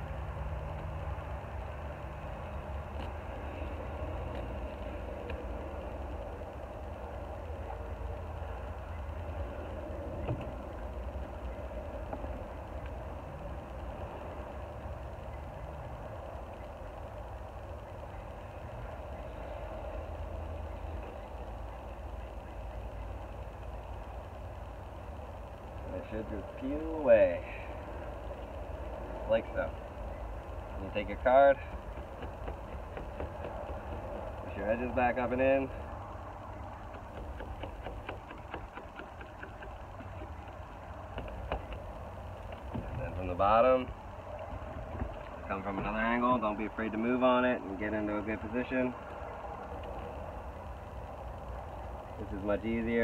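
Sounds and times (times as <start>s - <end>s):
engine idling: 0.0s - 53.0s
plastic card scraping and ticking: 36.8s - 42.7s.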